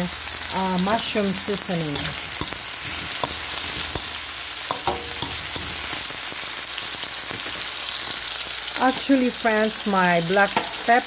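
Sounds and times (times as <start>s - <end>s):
vegetables sizzling in hot oil: 0.0s - 11.0s
spatula scraping wok: 0.8s - 9.4s
spatula tapping pan: 1.9s - 6.0s.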